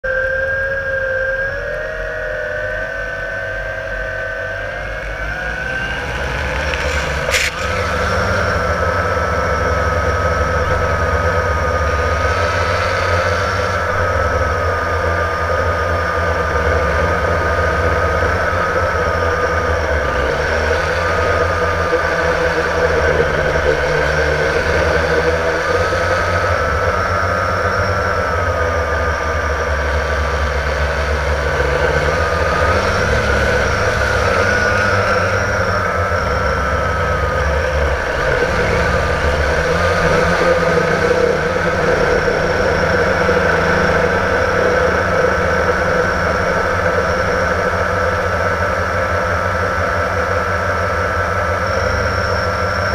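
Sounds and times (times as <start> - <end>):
quadcopter motors whining: 0.0 - 52.9.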